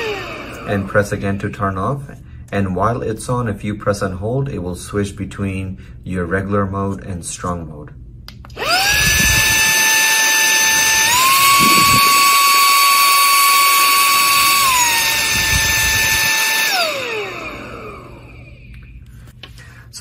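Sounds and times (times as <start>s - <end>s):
handheld vacuum motor whine: 0.0s - 1.0s, 8.5s - 18.8s.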